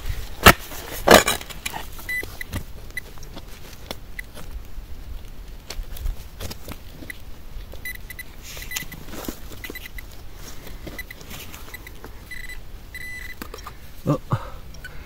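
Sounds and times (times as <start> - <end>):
earth and stones scraping: 0.0 - 14.0
spade digging into stony soil: 0.3 - 2.6
metal detector beeps: 2.1 - 3.1, 7.8 - 10.1, 10.7 - 13.4.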